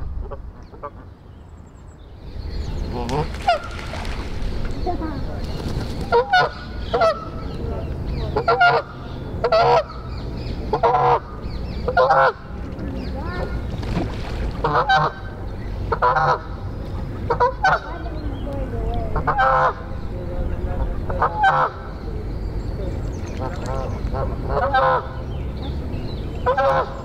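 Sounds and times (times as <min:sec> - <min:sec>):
goose honking: 0:06.1 - 0:07.4, 0:08.4 - 0:10.0, 0:10.7 - 0:11.3, 0:11.9 - 0:12.4, 0:14.6 - 0:15.3, 0:15.9 - 0:16.6, 0:17.3 - 0:18.0, 0:21.1 - 0:21.9, 0:23.4 - 0:25.2, 0:26.4 - 0:27.0.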